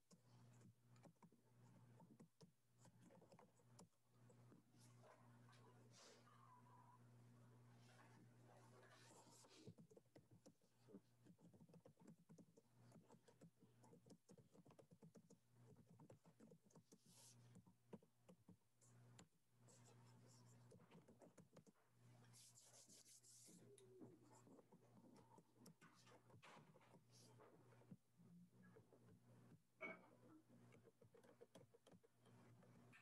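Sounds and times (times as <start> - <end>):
typing on keyboard: 0.0 - 4.5, 9.3 - 21.8, 30.6 - 33.0.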